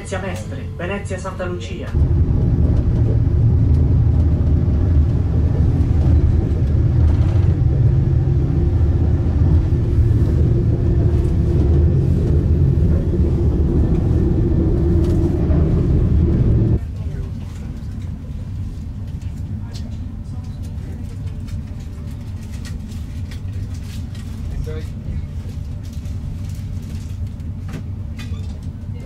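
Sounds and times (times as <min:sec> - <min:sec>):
train rumbling in motion: 0:00.0 - 0:29.0.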